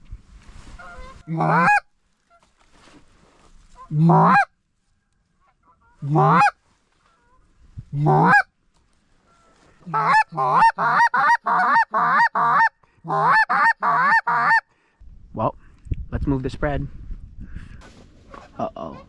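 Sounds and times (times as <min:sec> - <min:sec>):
goose call honks and clucks: 0:00.8 - 0:02.5, 0:03.7 - 0:04.5, 0:05.4 - 0:08.5, 0:09.2 - 0:14.7, 0:18.3 - 0:19.0.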